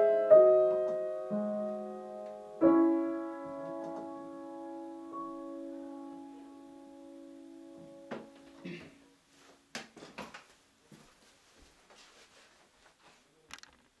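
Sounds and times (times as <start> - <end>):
piano chord ringing: 0.0 - 8.8
footsteps walking away: 7.8 - 13.2.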